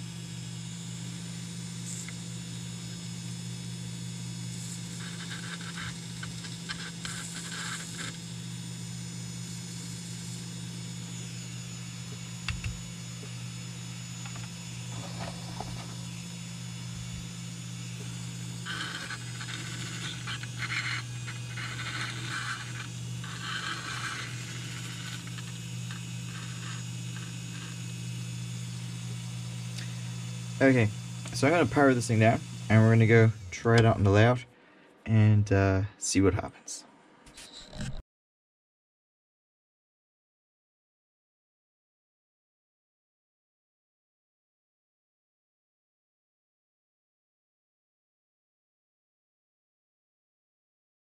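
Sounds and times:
small electric motor humming: 0.0s - 34.4s.

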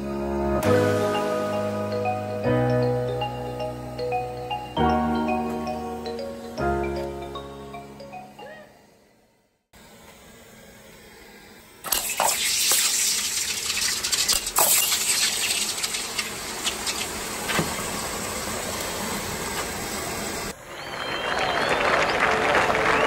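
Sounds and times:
hot metal sizzling in water: 11.8s - 20.5s.

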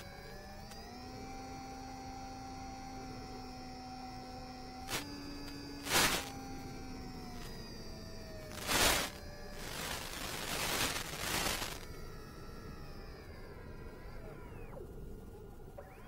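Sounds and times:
electrical motor whine: 0.0s - 16.0s
noise bursts: 4.2s - 16.0s.

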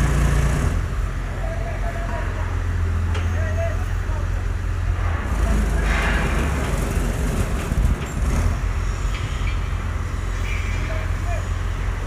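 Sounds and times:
crane diesel engine rumbling: 0.0s - 12.0s.

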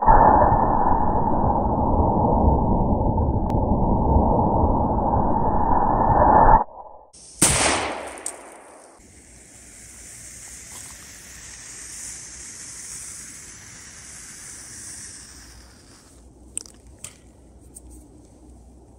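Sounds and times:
faint high hiss: 7.2s - 16.3s
shotgun shot echoing: 7.4s - 9.0s.

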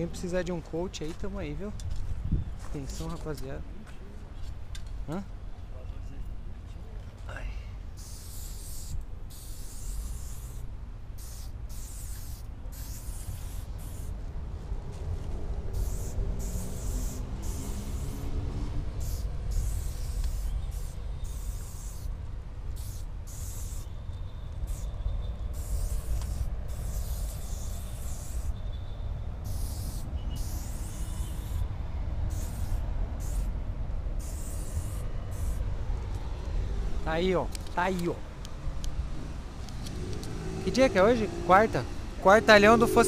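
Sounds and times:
spray paint can hissing: 7.9s - 14.2s, 15.6s - 36.2s
low rumble: 38.5s - 43.0s.

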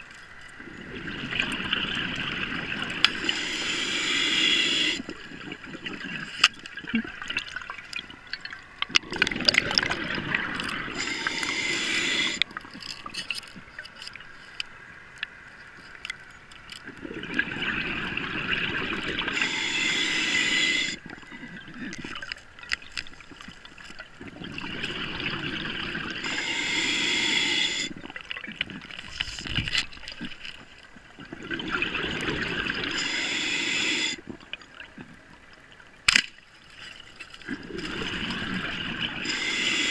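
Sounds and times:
diver breathing through regulator: 3.1s - 5.2s, 10.9s - 12.5s, 19.2s - 21.5s, 26.2s - 28.0s, 32.8s - 34.2s, 39.1s - 39.9s.

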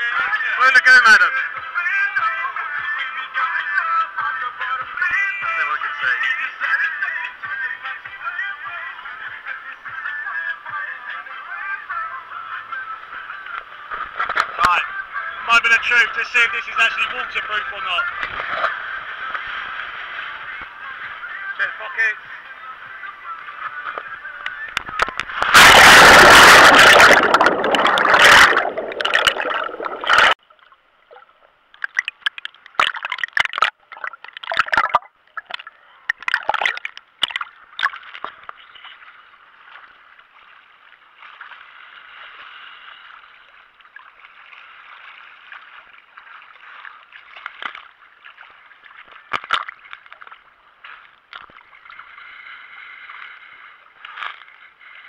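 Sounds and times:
small waves lapping and gurgling: 0.0s - 55.0s
scattered splashes: 24.7s - 30.4s, 31.8s - 38.4s
heavy splashing of seawater: 24.9s - 30.4s.

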